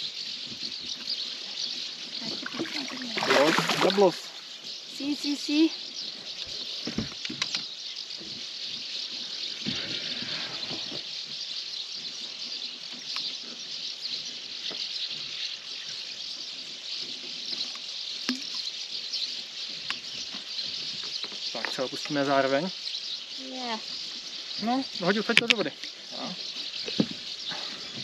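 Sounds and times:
water splashing and dripping: 2.2s - 4.4s, 17.7s - 18.7s.

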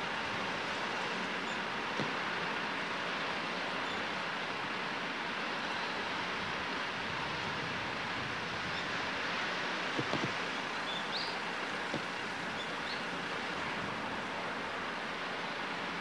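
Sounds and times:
boat turbine rushing noise: 0.0s - 16.0s
light knocks: 2.0s - 2.2s, 9.9s - 10.4s, 11.8s - 12.2s.

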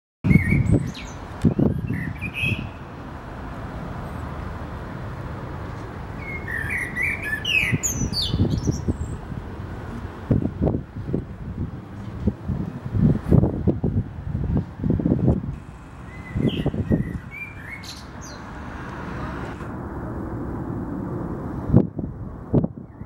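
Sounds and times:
blackbird singing: 0.3s - 2.8s, 6.2s - 9.2s, 16.0s - 18.5s
low rumble: 15.5s - 22.8s.

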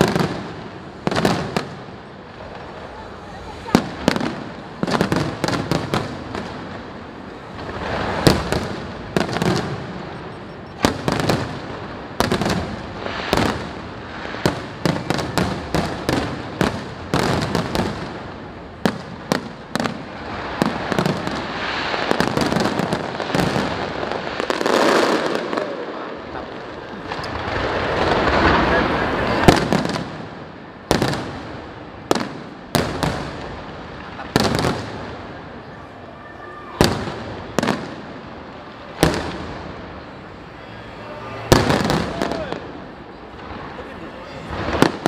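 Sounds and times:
fireworks bangs: 0.0s - 45.0s
fireworks crackle: 0.0s - 45.0s.

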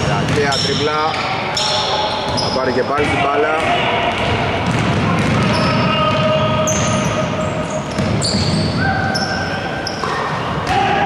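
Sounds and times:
basketball dribbling: 0.0s - 1.6s, 2.3s - 7.0s, 7.8s - 9.3s
sneakers squeaking on floor: 0.0s - 10.9s.

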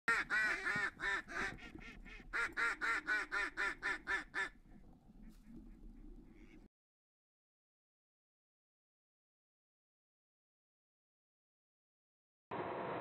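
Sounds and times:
duck quacking: 0.1s - 4.6s.

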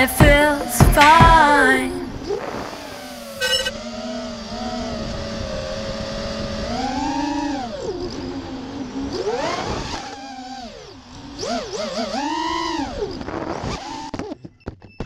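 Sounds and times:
quadcopter motors whining: 0.0s - 14.4s
high-pitched chirp: 3.3s - 3.8s.

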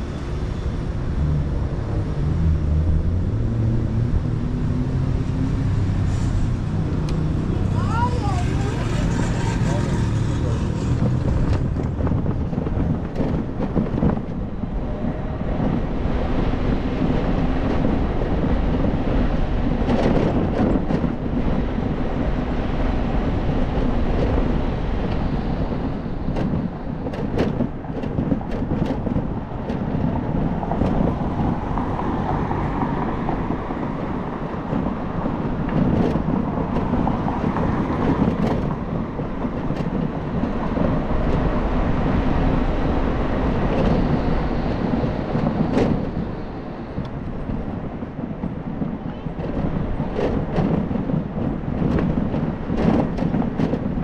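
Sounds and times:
road and tyre noise: 0.0s - 54.0s
wind rushing over microphone: 0.0s - 54.0s.

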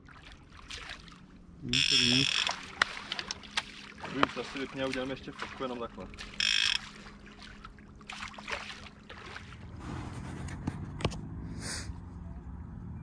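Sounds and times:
boat engine low hum: 0.0s - 13.0s
short sharp high-pitched sound: 1.8s - 2.5s.

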